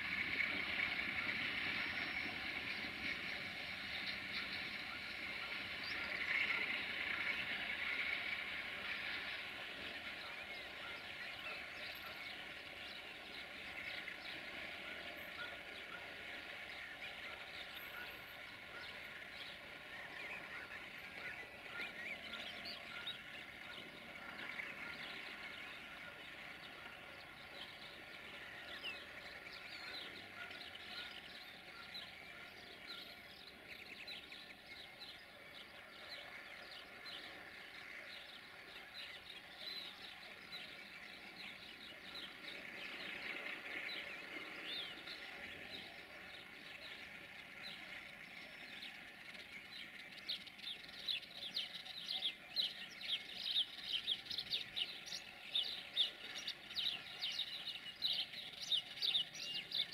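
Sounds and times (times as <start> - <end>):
birds chirping and singing: 0.0 - 59.9
faint steady drone: 0.0 - 59.9.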